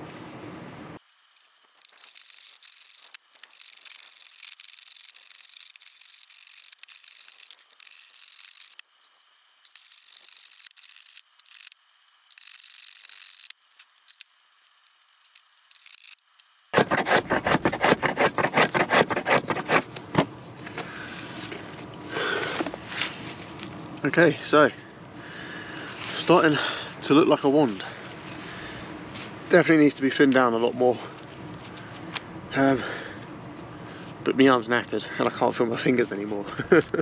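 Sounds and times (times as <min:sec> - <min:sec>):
hand plane shaving wood: 0:16.8 - 0:19.9.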